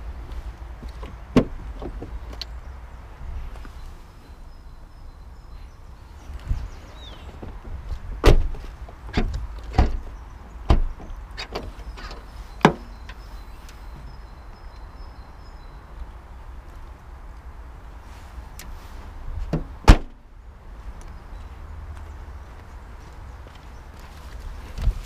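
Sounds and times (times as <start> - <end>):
car doors clunking shut: 1.0 - 2.2, 7.3 - 13.2, 19.4 - 20.2.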